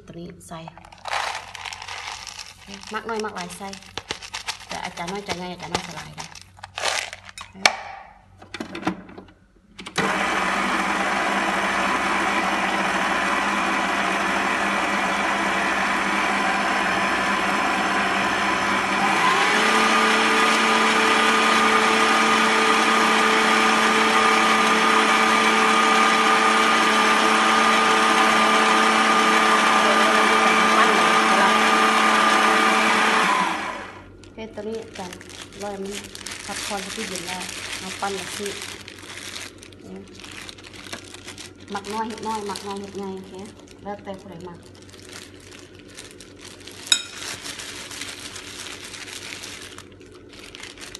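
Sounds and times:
stand mixer motor whine: 10.0 - 34.2.

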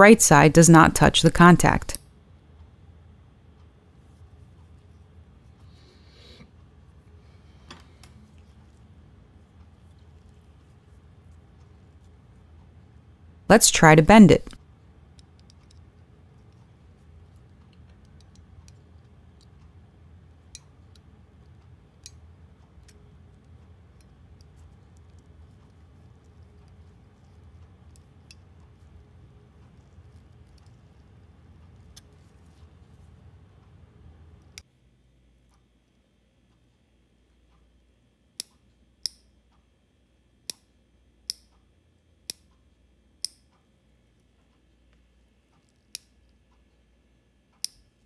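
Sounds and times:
metal tool clicking on switch: 43.2 - 43.4, 47.6 - 47.8.

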